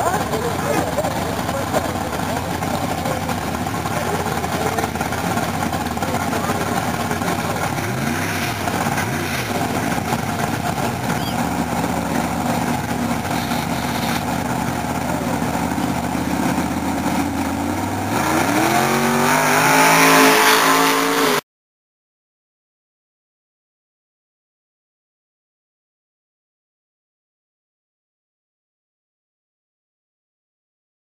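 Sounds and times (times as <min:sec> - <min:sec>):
cars accelerating hard: 0:00.0 - 0:21.4
drag racing engines revving: 0:00.0 - 0:21.4.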